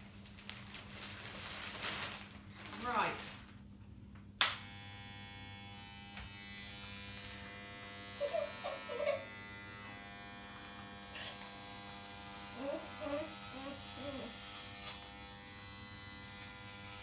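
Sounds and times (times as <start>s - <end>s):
hair clippers switch click: 4.4s - 4.8s
hair clippers buzzing: 4.4s - 17.0s.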